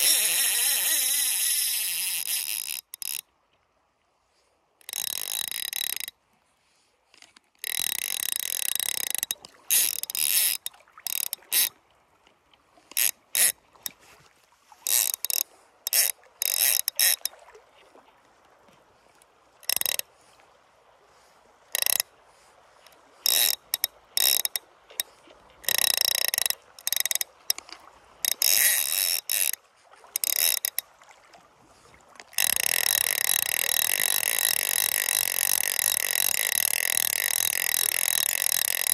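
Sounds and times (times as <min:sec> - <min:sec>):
fly reel ratchet buzzing: 0:00.0 - 0:03.2, 0:04.9 - 0:06.1, 0:07.6 - 0:11.7, 0:12.9 - 0:13.6, 0:14.9 - 0:17.3, 0:23.3 - 0:24.6, 0:25.6 - 0:27.2, 0:28.2 - 0:29.6, 0:30.2 - 0:30.8, 0:32.4 - 0:38.9.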